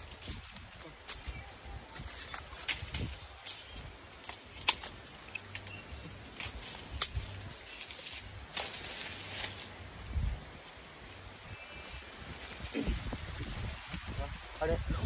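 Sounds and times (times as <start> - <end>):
branches and twigs snapping: 0.0 - 9.7, 12.3 - 13.1.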